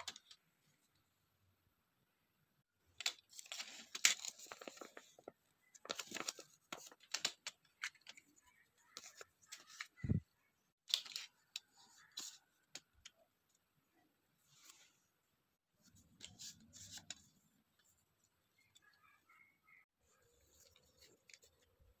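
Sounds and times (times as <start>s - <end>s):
paper rustling and crinkling: 3.0s - 10.1s.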